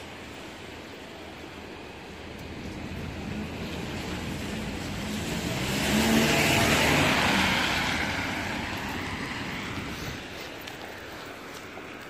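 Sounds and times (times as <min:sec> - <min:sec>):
tyres hissing on wet street: 0:00.0 - 0:12.0.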